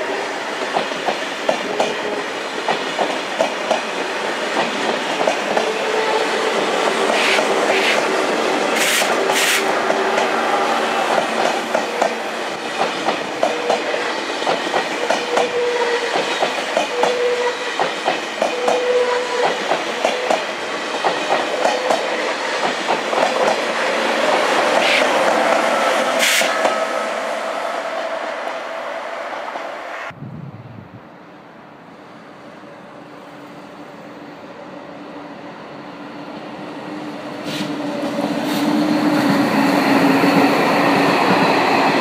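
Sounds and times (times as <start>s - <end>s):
train rolling rumble: 0.0s - 28.7s
wheels clickety-clack: 12.8s - 15.5s
brief high hisses: 26.2s - 26.7s, 37.4s - 37.8s.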